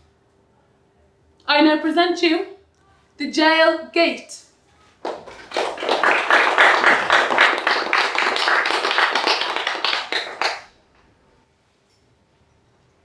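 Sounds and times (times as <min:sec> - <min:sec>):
audience applauding: 0:05.0 - 0:10.8.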